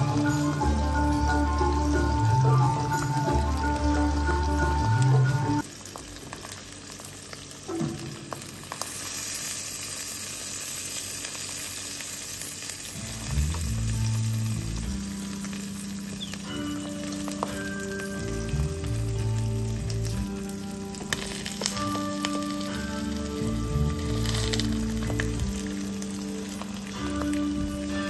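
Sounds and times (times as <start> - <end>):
background music: 0.0 - 5.6, 13.0 - 28.0
eggs sizzling in oil: 0.0 - 28.0.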